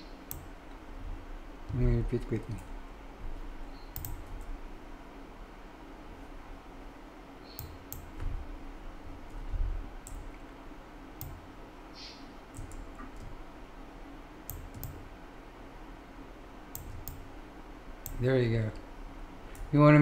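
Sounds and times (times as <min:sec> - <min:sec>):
faint steady hum: 0:00.0 - 0:20.0
mouse and keyboard clicks: 0:03.9 - 0:04.4, 0:07.5 - 0:08.2, 0:12.0 - 0:13.3, 0:14.5 - 0:15.0.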